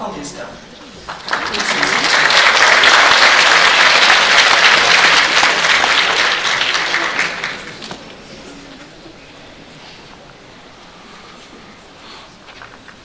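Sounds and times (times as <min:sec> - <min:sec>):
audience applauding: 0:01.0 - 0:08.8.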